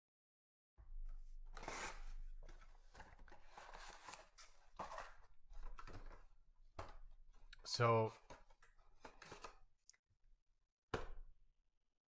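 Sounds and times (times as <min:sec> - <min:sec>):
cardboard box being opened: 0:01.5 - 0:06.2.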